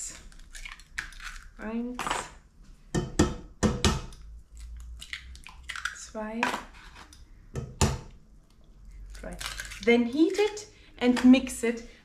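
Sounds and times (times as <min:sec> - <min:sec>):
eggs knocking on steel pot: 0:03.0 - 0:04.1.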